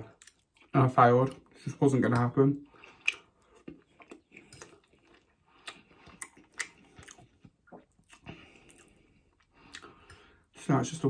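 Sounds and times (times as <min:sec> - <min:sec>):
wet chewing mouth clicks: 0:02.1 - 0:10.3.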